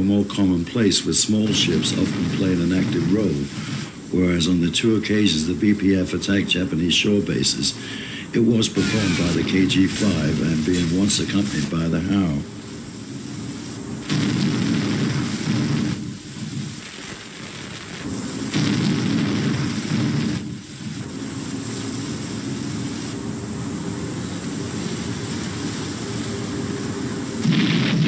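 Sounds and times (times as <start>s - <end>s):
old film soundtrack hiss: 0.0s - 28.0s
heavy guns booming: 1.3s - 4.0s, 14.0s - 16.8s, 18.5s - 20.6s, 27.4s - 28.0s.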